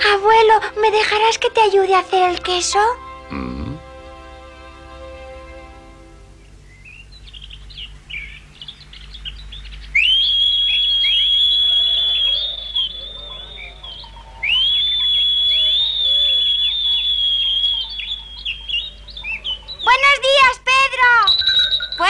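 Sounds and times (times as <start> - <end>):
birds chirping: 0.0 - 22.0
long high whistles: 10.0 - 20.2, 21.2 - 22.0.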